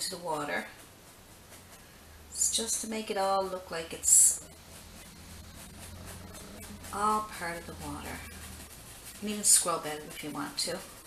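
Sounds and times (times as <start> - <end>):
brush scratching on canvas: 0.0 - 11.0
low steady hum: 0.0 - 11.0
person speaking: 2.3 - 11.0.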